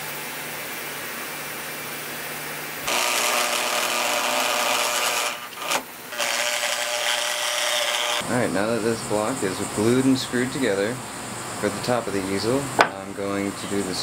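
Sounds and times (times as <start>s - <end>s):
power drill boring into wood: 2.9s - 8.2s.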